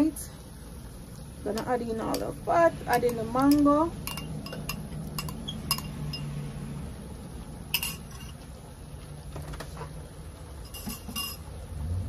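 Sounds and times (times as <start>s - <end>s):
spoon clinking against glass bowl: 3.0s - 6.4s, 7.7s - 8.4s, 10.6s - 11.5s.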